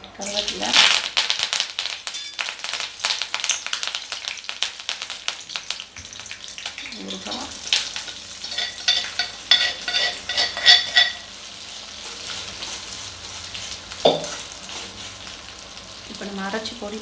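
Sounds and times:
oil sizzling: 0.0 - 17.0
spoon scraping a pan: 8.1 - 15.2.

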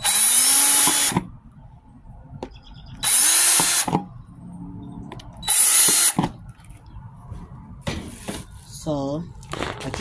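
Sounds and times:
cordless drill boring plastic: 0.0 - 1.2, 3.0 - 4.0, 5.4 - 6.2.

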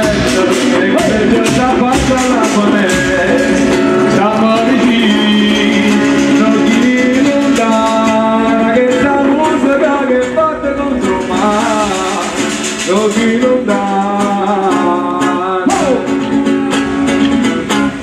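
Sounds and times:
beating on wooden barrels: 0.0 - 8.8
man singing into a microphone: 0.0 - 17.5.

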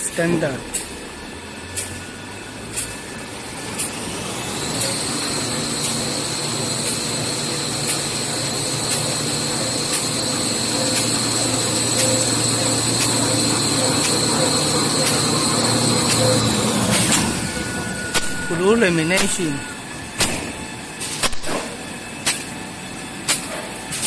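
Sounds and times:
machine humming: 0.0 - 23.3
high machine whine: 0.0 - 24.0
sharp machine click: 1.7 - 2.0, 9.9 - 17.3, 18.1 - 22.5.

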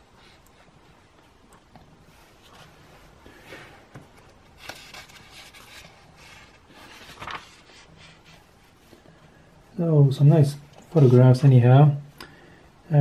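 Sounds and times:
magazine page rustling: 2.3 - 9.0.

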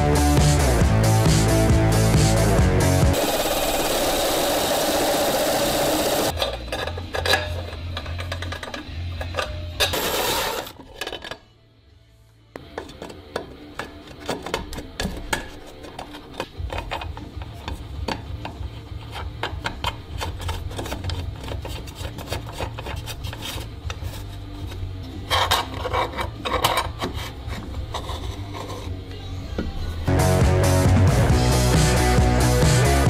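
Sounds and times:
nut threading scraping and clicking: 13.8 - 29.0
plastic housing rubbing on bench: 15.5 - 29.0.

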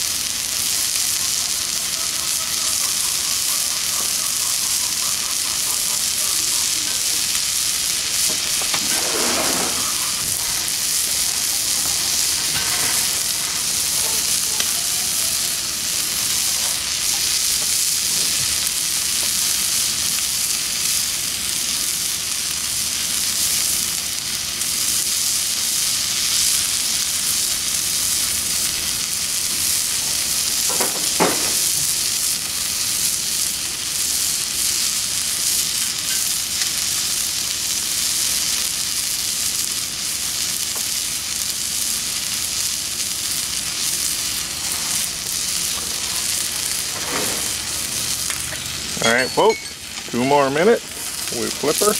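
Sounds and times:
steak sizzling on griddle: 0.0 - 51.9.

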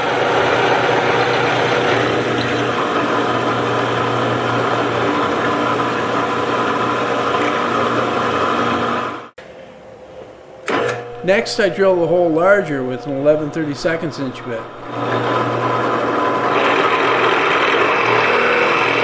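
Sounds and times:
drill press motor hum: 0.0 - 9.3, 10.6 - 19.0
drill bit grinding through metal: 12.2 - 19.0.

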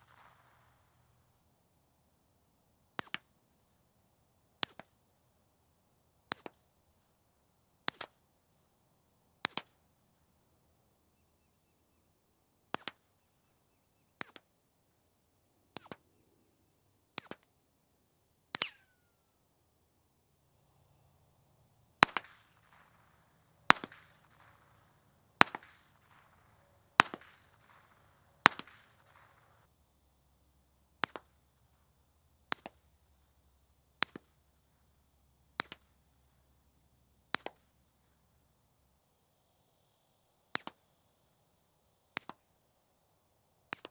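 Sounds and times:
suppressed pistol shots: 0.0 - 1.2, 22.0 - 29.6.

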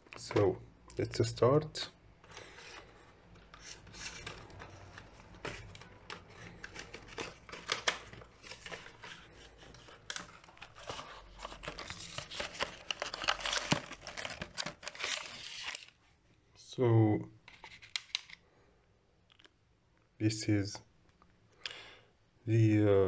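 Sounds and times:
plastic packaging rustling: 2.3 - 16.0
cardboard box being opened: 9.8 - 15.9.

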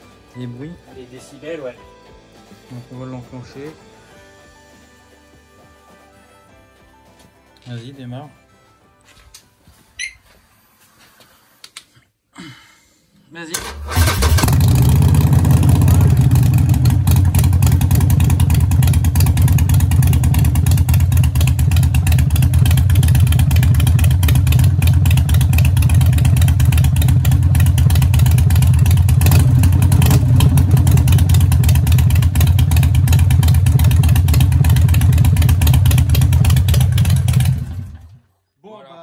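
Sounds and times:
motorcycle engine idling: 14.4 - 38.1.

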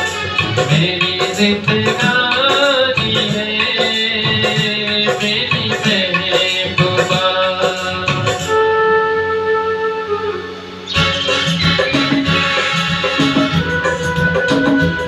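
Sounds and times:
flute-like melody: 0.0 - 0.8, 8.1 - 15.0
tabla-style percussion: 0.0 - 8.6, 10.9 - 15.0
long held notes: 7.8 - 15.0.

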